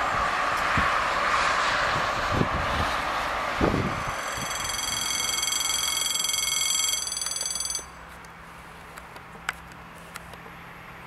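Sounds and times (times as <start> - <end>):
crossing warning bell ringing: 3.8 - 8.0.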